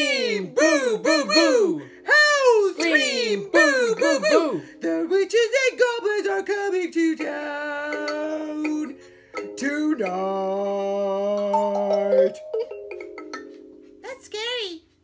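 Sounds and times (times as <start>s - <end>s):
man howling and wailing: 0.0s - 6.4s.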